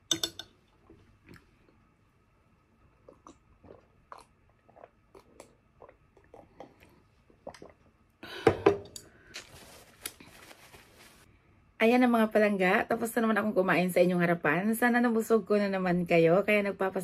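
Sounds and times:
person gulping a drink: 2.8s - 9.4s
paper tissue rustling: 9.3s - 11.3s.

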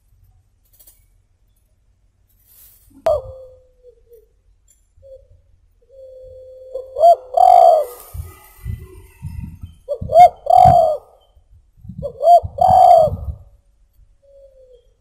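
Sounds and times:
dove cooing: 3.1s - 4.3s, 5.0s - 15.0s.

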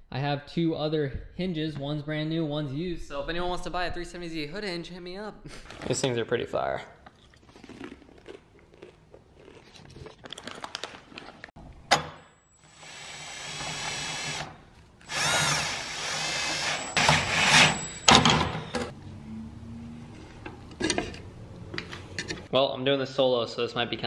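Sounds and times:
power drill motor whirring: 12.3s - 18.9s.

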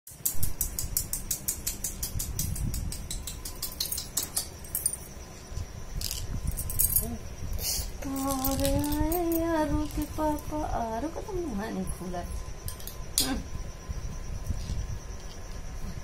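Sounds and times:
plastic baby rattle shaking: 8.2s - 10.0s.

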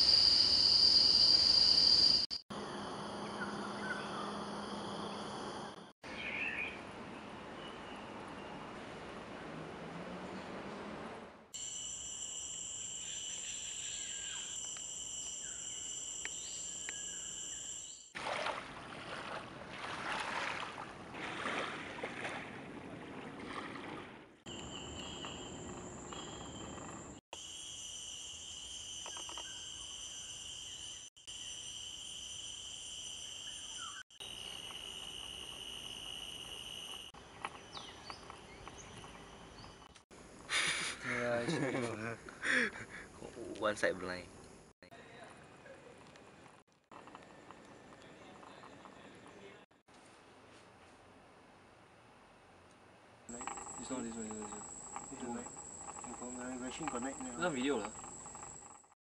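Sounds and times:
high-pitched insect chorus: 0.0s - 5.8s, 11.6s - 18.1s, 24.5s - 39.7s, 53.3s - 58.9s.

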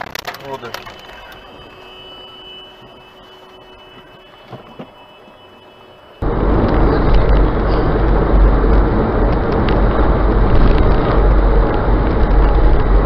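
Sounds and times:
car interior road rumble: 6.1s - 13.0s.

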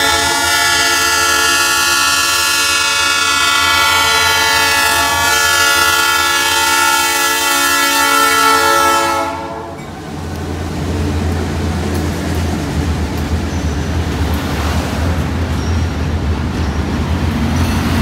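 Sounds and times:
locomotive air horn: 0.0s - 9.9s.

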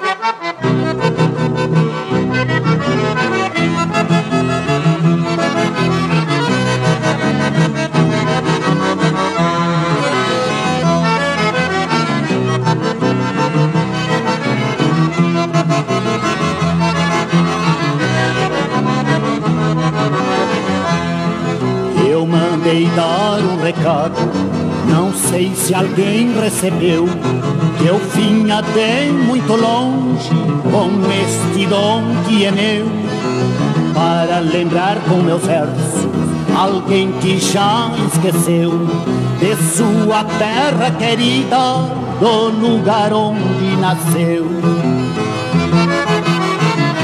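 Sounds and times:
accordion melody: 0.0s - 47.0s
bass line: 0.6s - 47.0s.

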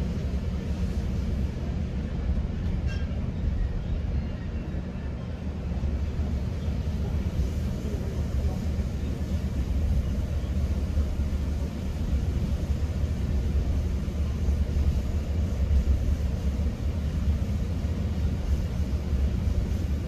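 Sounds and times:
train rumble inside coach: 0.0s - 20.0s.

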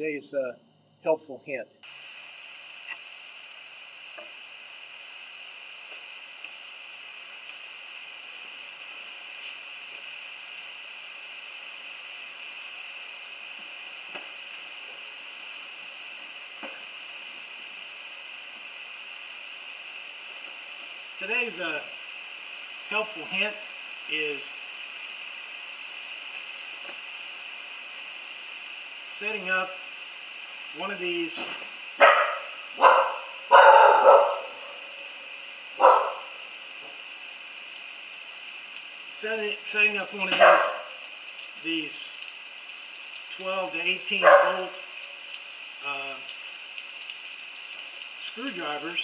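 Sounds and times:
dog barking: 32.0s - 35.0s, 35.8s - 36.3s, 40.3s - 41.0s, 44.2s - 44.8s
shop background hiss: 45.8s - 46.2s.

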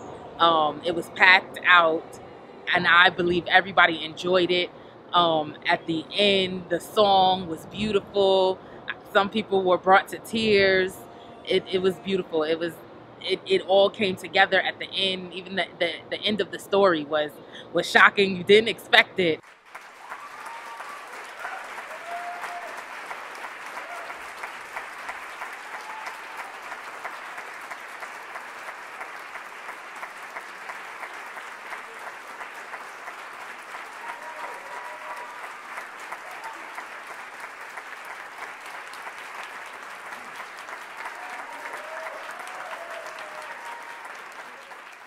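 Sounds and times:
audience applauding: 19.4s - 45.0s.

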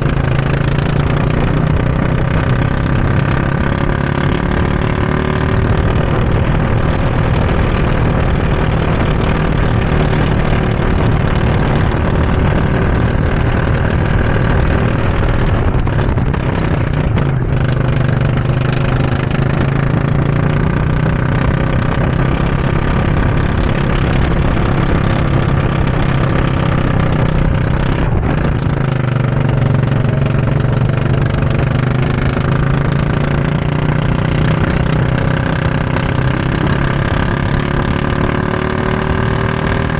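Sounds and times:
go-kart engine racing: 0.0s - 39.9s.

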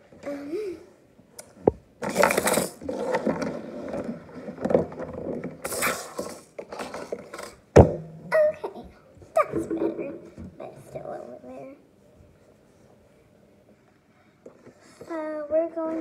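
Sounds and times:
plastic tubs clattering: 2.0s - 8.7s.

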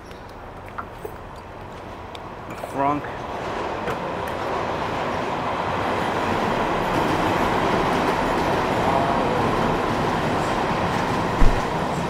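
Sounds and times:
steady mechanical noise: 10.4s - 12.0s
sharp thump: 11.4s - 11.7s.

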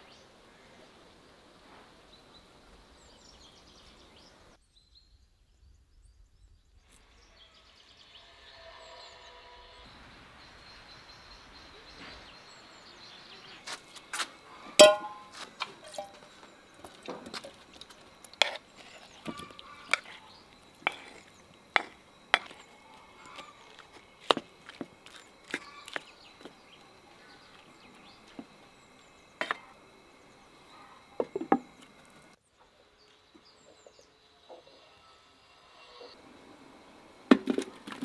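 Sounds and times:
wooden spoon knocking on pan: 14.8s - 15.3s, 31.2s - 31.7s.

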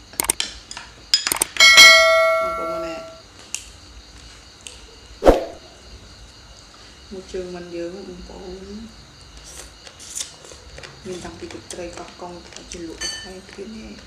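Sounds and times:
utensil striking ringing dish: 1.6s - 3.2s.

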